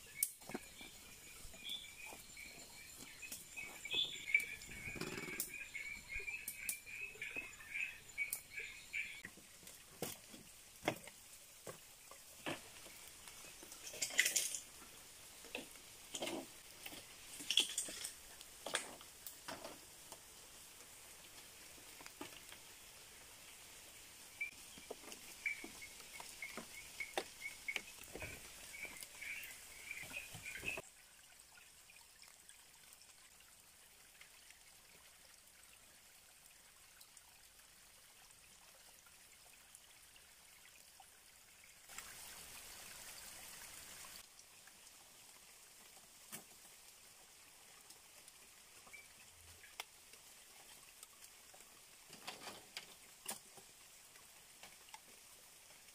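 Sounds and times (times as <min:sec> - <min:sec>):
stream trickling: 0:00.0 - 0:55.9.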